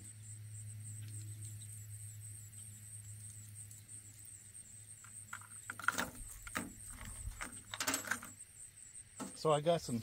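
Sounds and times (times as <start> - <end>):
insects droning: 0.0 - 10.0
metal lures clattering together: 5.3 - 8.4.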